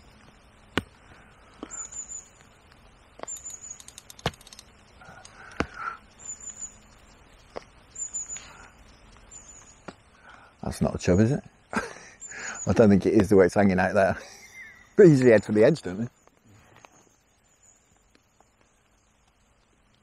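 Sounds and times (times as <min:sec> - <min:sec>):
small bird high thin calls: 0:14.2 - 0:15.0.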